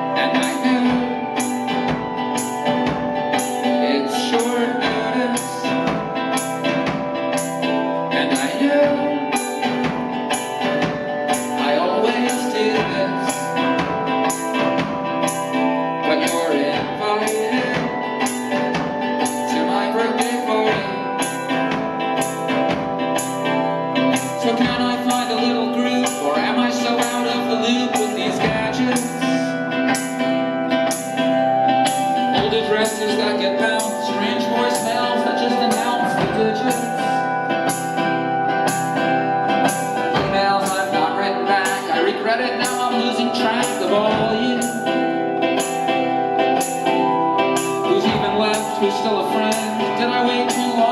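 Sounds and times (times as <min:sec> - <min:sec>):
man singing: 0:00.0 - 0:01.9, 0:03.3 - 0:10.0, 0:11.3 - 0:14.7, 0:15.3 - 0:18.6, 0:19.2 - 0:21.8, 0:24.0 - 0:29.7, 0:32.3 - 0:38.0, 0:39.6 - 0:46.1, 0:47.8 - 0:50.9
electric guitar strumming: 0:00.0 - 0:50.9
held keyboard tones: 0:00.0 - 0:50.9
live band playing: 0:00.0 - 0:50.9.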